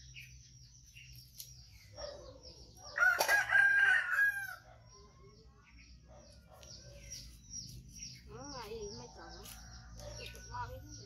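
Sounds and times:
rooster crowing: 3.0 - 4.8.

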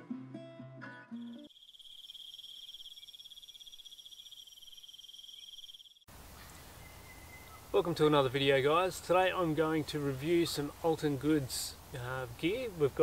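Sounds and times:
cricket trill: 1.2 - 6.1.

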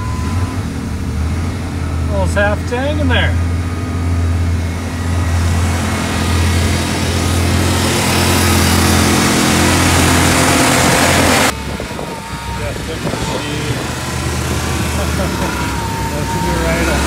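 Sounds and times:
truck engine idling: 0.0 - 17.0
rushing noise: 4.6 - 17.0.

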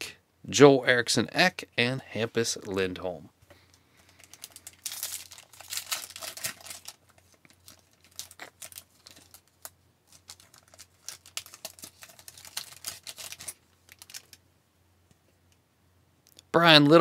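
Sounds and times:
wrapper tearing and crinkling: 4.2 - 14.4.

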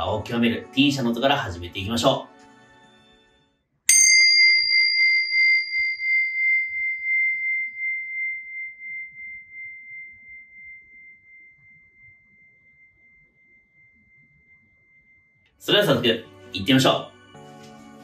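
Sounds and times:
hand cymbals ringing: 3.9 - 15.5.

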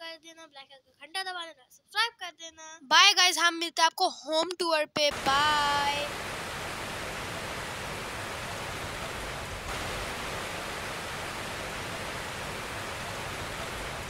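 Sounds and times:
rushing water: 5.1 - 14.0.

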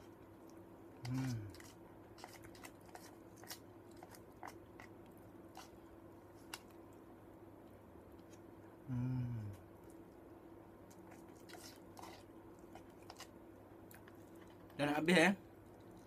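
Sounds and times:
quiet chewing: 0.0 - 14.8, 15.5 - 16.0
person humming: 1.0 - 1.6, 8.8 - 9.6.

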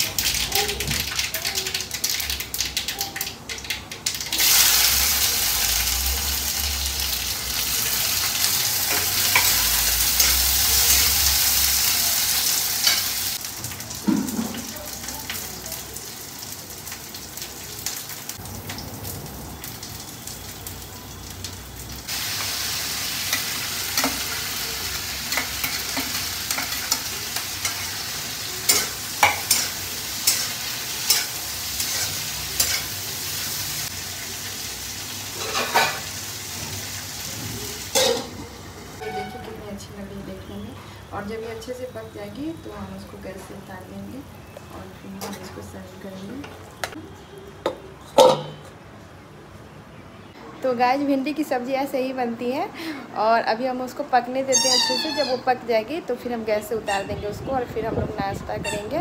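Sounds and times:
vegetables sizzling in hot oil: 0.0 - 47.0
metal spatula scraping a pan: 35.4 - 36.1, 39.0 - 39.6.

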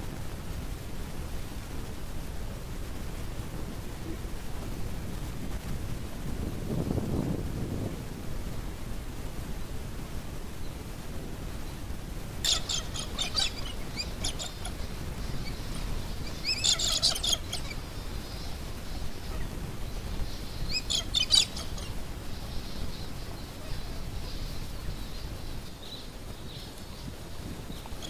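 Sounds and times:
finches chirping: 12.4 - 28.0.

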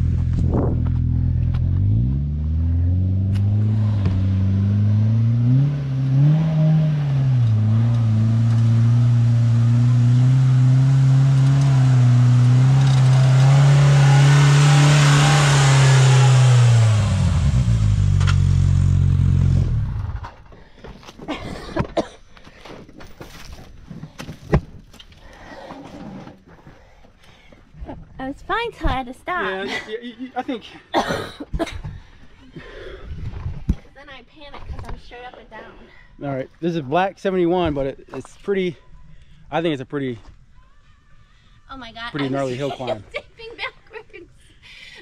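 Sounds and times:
off-road vehicle engine revving: 0.0 - 20.3.

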